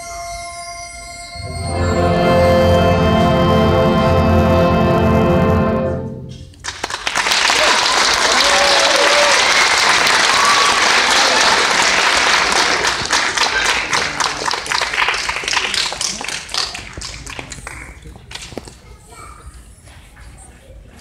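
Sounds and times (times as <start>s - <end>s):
audience clapping: 6.5s - 18.8s
audience cheering: 6.6s - 17.8s.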